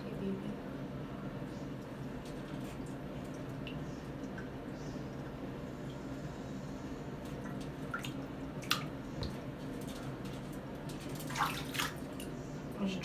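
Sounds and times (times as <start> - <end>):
steady low hum: 0.0 - 13.0
water drips in bathtub: 2.2 - 6.1, 7.2 - 12.4.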